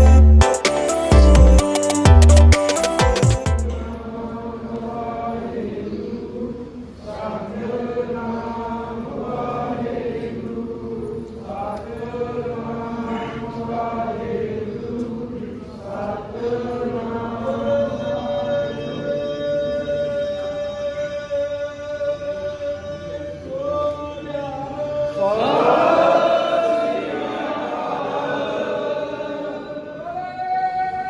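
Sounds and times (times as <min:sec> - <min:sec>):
slow devotional chant: 0:03.7 - 0:31.0.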